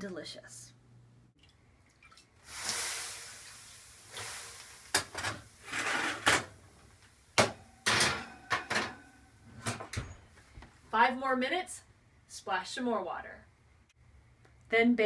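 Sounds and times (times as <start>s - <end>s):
water hissing into steam: 2.4s - 6.1s
metal clatter of bakeware: 7.8s - 9.8s.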